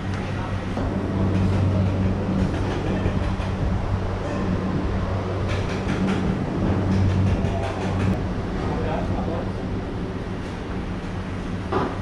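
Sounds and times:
fans and appliances humming: 0.0 - 12.0
light clatters: 5.3 - 8.2.

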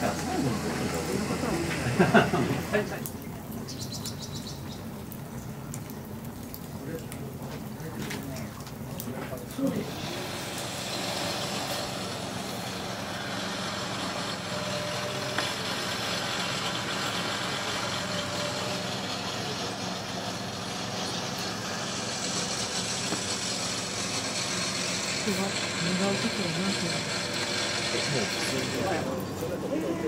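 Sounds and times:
motor humming steadily: 0.0 - 30.0
broad hiss: 9.7 - 29.2.

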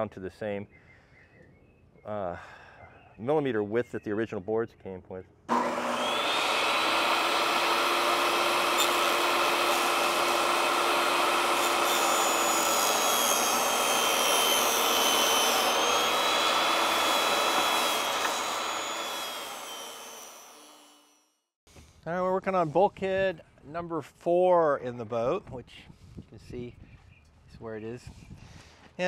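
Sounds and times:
table saw cutting wood: 5.5 - 21.2.

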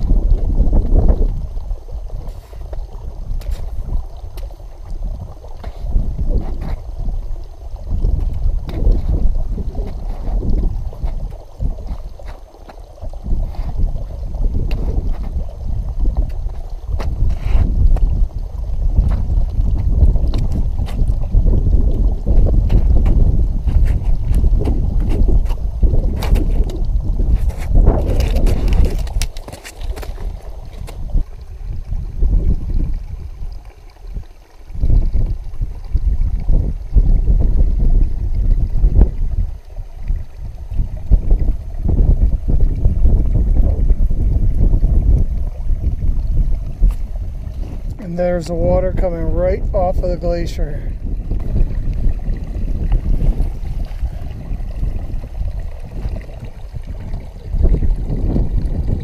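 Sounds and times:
wind buffeting microphone: 0.0 - 59.0
poles and boots ticking on ice: 3.4 - 4.6, 22.4 - 31.2.

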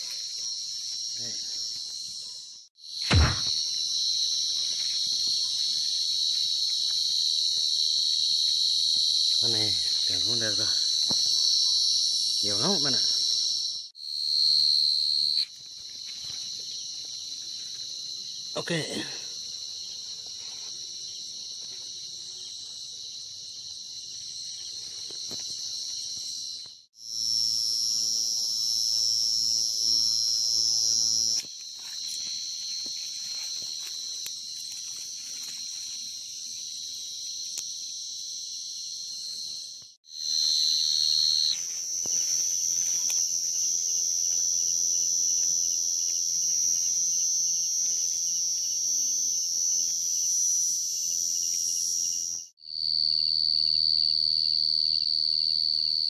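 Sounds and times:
crickets chirping: 0.0 - 56.0.

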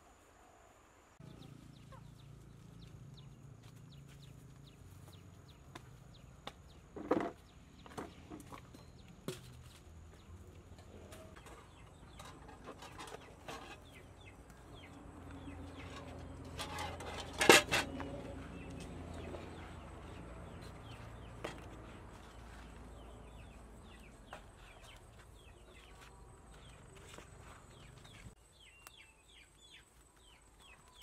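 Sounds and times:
chickens clucking: 10.8 - 22.7.

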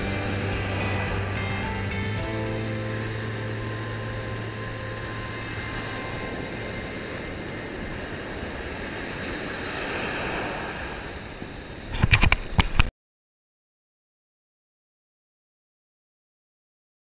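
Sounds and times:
background music: 0.0 - 6.3
ocean surf breaking: 0.0 - 12.8.

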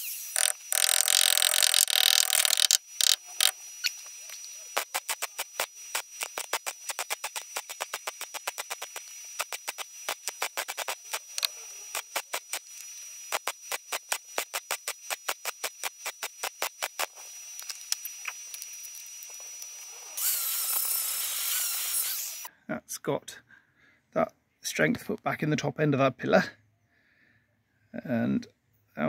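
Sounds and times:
angle grinder starting: 0.0 - 3.6, 20.1 - 22.5
welder pulsing: 0.0 - 22.5.

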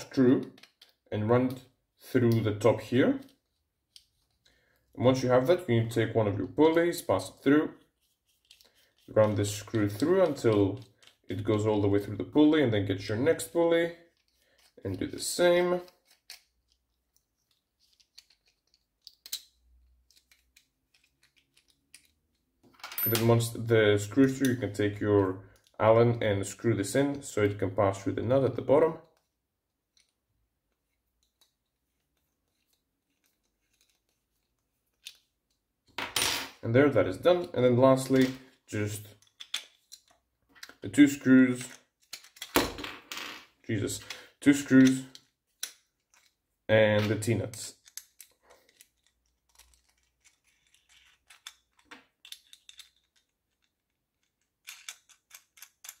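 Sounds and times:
metal nuts and screws clicking: 47.8 - 56.0.

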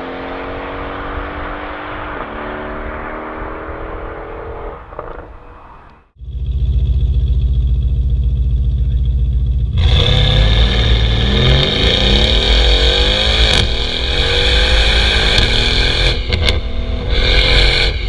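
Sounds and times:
car engine accelerating hard: 0.0 - 5.6, 6.2 - 18.0.

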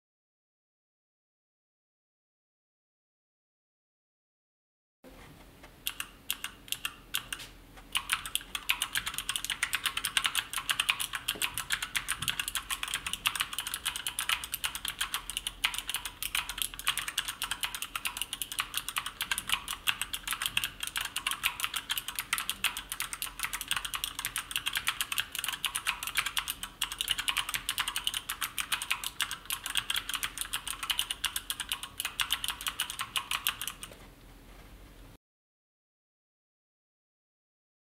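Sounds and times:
mechanical keyboard typing: 5.8 - 34.0.

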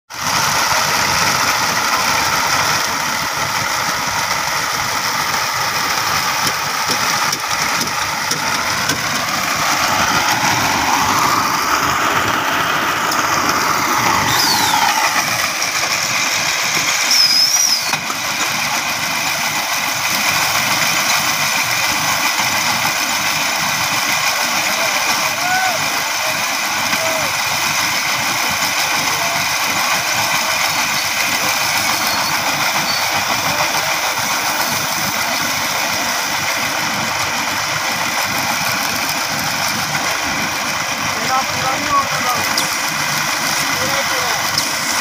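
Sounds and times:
baling machine running: 0.1 - 45.0
short high squeals: 14.2 - 15.2, 17.0 - 18.0, 31.8 - 33.2.

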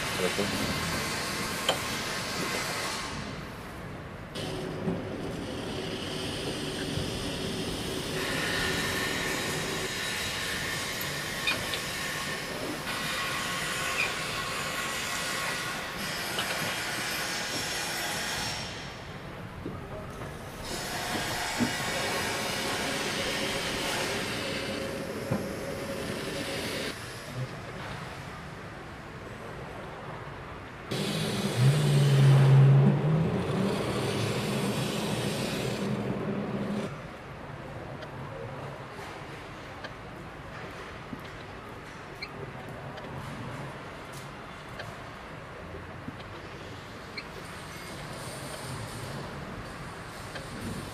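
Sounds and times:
rolling mill gears grinding: 30.9 - 36.9
gas torch hissing: 33.4 - 36.9.

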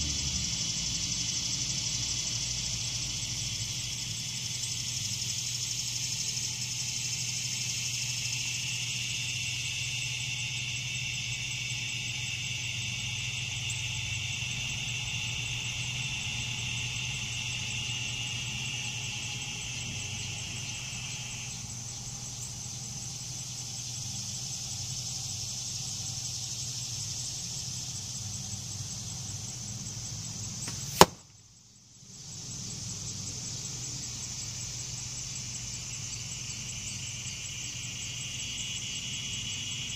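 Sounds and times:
arrow striking foam target: 30.6 - 31.3.

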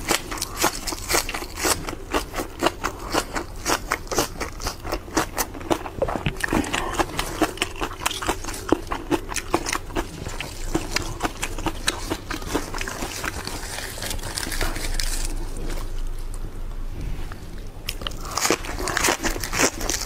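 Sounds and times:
lettuce crackling: 0.0 - 16.4, 17.9 - 20.0
low steady hum: 0.0 - 20.0.

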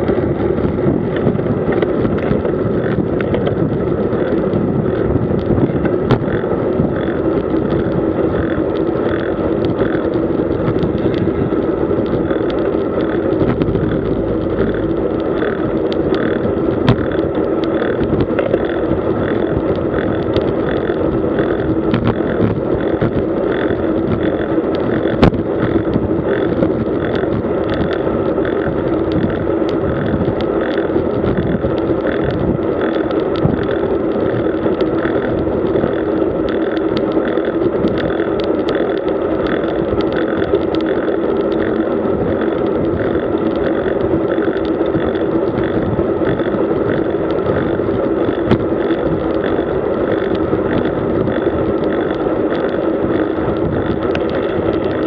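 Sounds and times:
bike tyre noise: 0.0 - 55.0
light regular tick: 0.0 - 55.0
wind over microphone: 0.0 - 55.0.

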